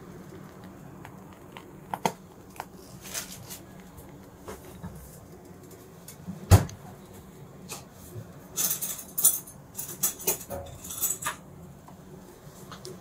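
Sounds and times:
light rustling and clinking: 8.6 - 11.4.

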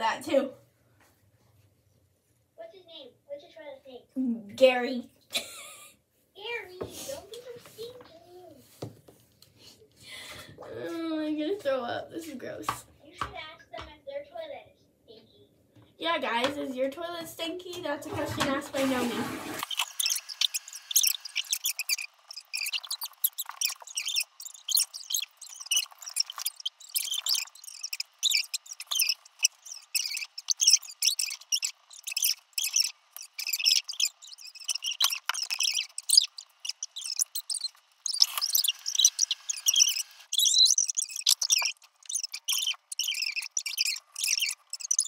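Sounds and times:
sped-up squeaky voices: 17.4 - 45.0.

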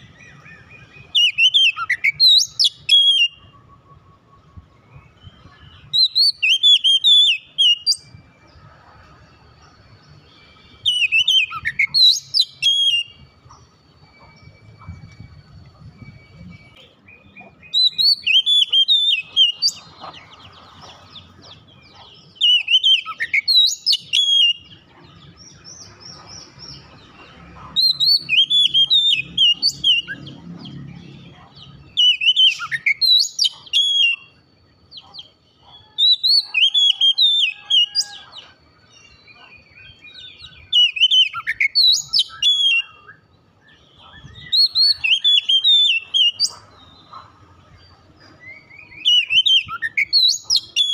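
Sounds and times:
bird whistling song: 0.0 - 8.7, 10.1 - 50.9.

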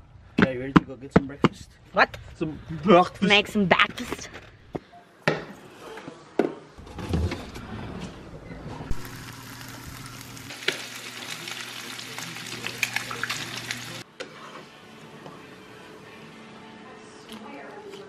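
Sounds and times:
eggs sizzling in a pan: 8.9 - 14.5.

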